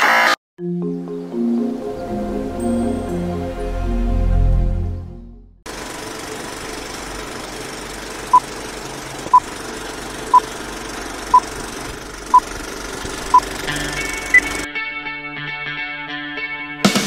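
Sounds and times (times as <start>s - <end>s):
intro music: 0.6s - 5.6s, 13.3s - 16.0s
film projector whirring: 5.7s - 14.7s.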